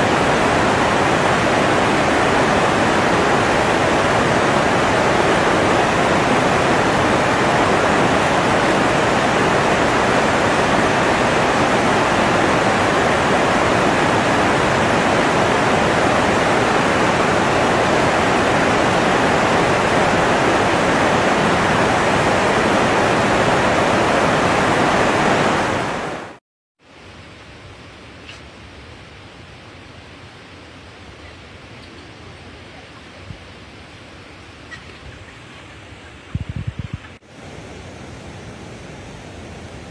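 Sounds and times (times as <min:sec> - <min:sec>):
flowing river water: 0:00.0 - 0:26.4.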